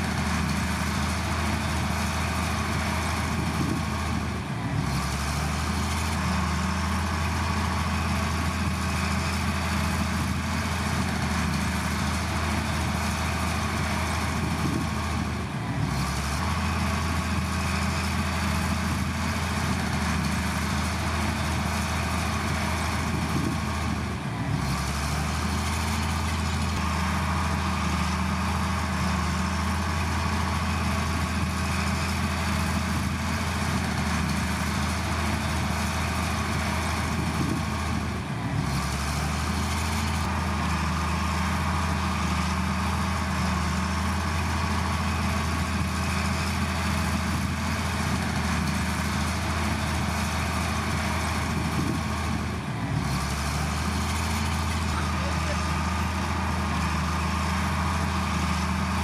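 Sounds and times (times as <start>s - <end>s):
heavy diesel engine humming: 0.0s - 59.0s.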